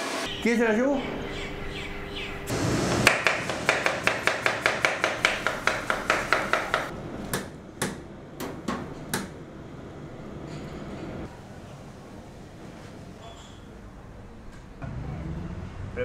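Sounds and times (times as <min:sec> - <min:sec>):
knife chopping on cutting board: 0:03.0 - 0:08.0.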